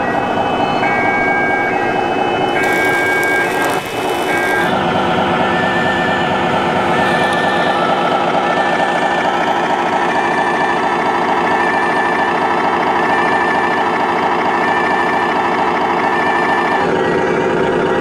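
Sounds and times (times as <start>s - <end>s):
model vehicle engine idling: 2.5s - 13.2s.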